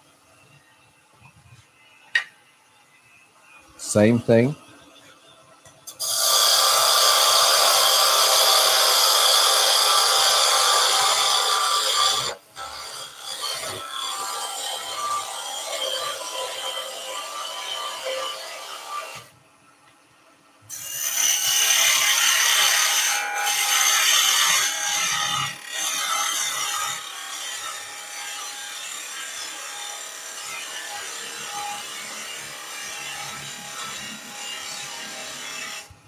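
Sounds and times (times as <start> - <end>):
wood lathe cutting: 6.0 - 19.3, 21.1 - 35.9.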